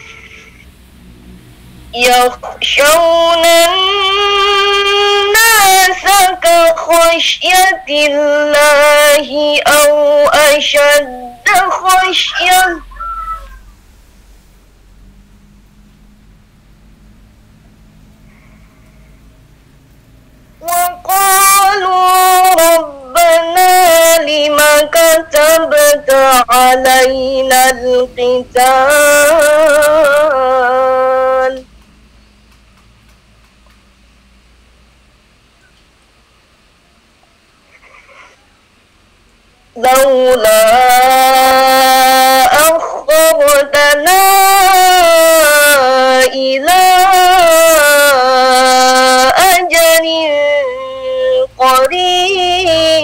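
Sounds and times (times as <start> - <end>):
woman reciting melodically: 1.9 - 13.8, 20.6 - 31.8, 39.7 - 53.0
woman chanting: 2.0 - 13.7, 20.6 - 31.7, 39.7 - 53.0.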